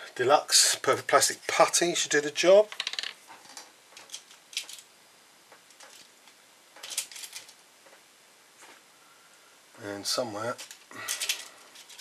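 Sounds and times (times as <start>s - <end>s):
small tools clicking and rustling: 2.7s - 4.9s, 5.5s - 8.0s, 10.5s - 12.0s.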